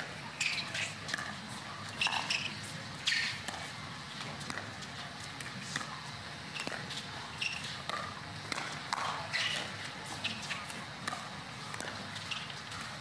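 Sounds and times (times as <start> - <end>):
paddles hitting plastic ball: 10.5 - 12.1.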